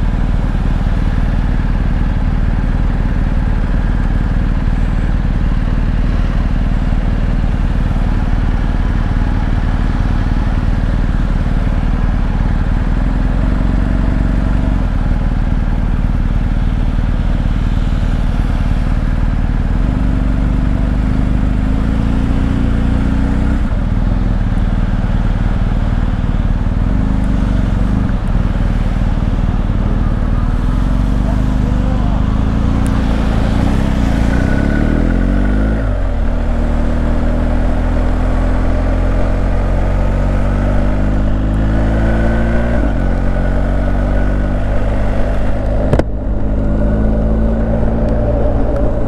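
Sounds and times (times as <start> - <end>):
motorcycle engine running: 0.0 - 49.0
wind noise: 39.5 - 49.0.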